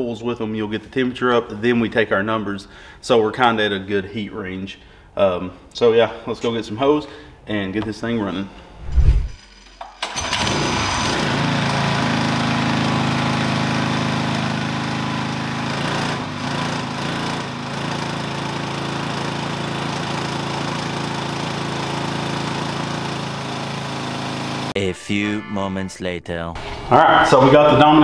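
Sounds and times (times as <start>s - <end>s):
engine starting and running: 8.9s - 24.8s.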